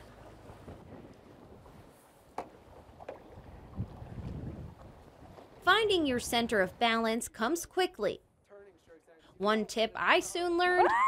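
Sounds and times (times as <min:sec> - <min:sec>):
soft water sounds: 0:00.0 - 0:11.0
wind noise on microphone: 0:02.9 - 0:05.5.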